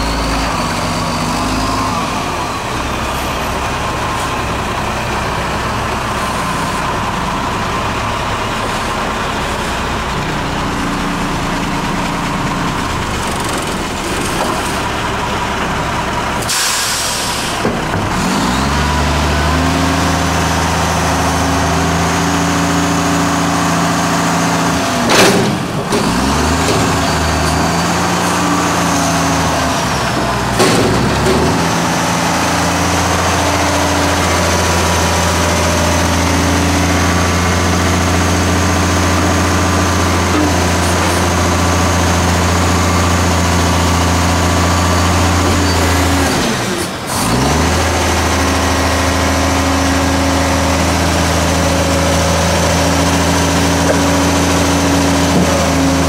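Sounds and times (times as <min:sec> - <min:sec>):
garbage truck diesel engine: 0:00.0 - 0:56.0.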